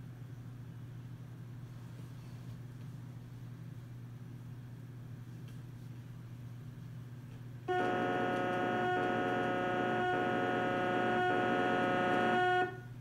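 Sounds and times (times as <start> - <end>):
low electrical hum: 0.0 - 13.0
horn-like moaning tone: 7.7 - 13.0.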